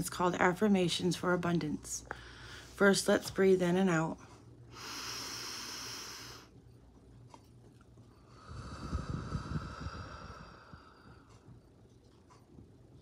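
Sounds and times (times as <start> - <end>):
slow deep breath: 4.7 - 6.5, 8.2 - 11.5
air rumbling on microphone: 8.4 - 11.6.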